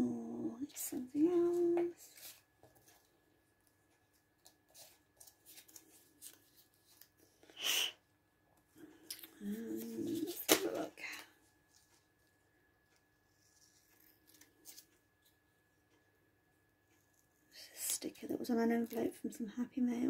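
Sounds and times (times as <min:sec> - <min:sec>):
person humming: 0:00.0 - 0:00.6, 0:09.4 - 0:10.4
paper handling: 0:04.1 - 0:07.2, 0:09.1 - 0:12.0.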